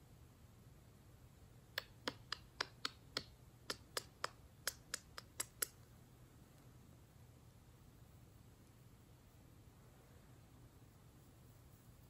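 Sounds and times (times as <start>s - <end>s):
makeup brush tapping clicks: 1.8s - 5.8s.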